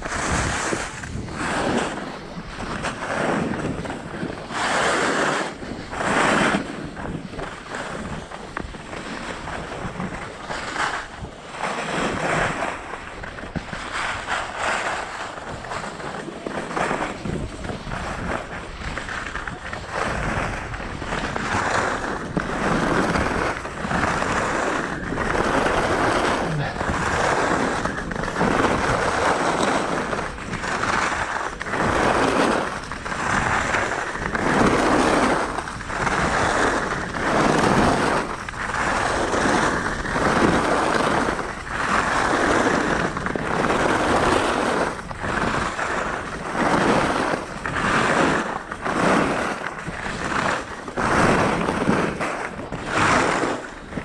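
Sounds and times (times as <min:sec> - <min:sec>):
skis scraping over snow: 0:00.0 - 0:54.0.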